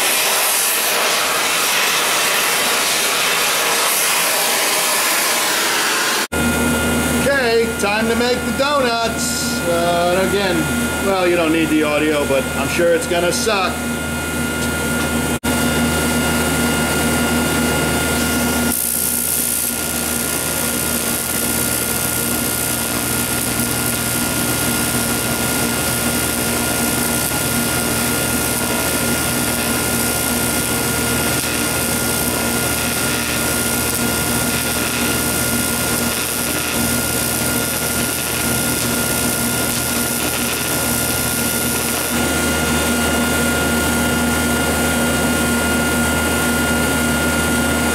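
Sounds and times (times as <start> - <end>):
welding arc hissing: 0.0 - 6.3, 16.9 - 45.5
electrical hum: 6.2 - 47.9.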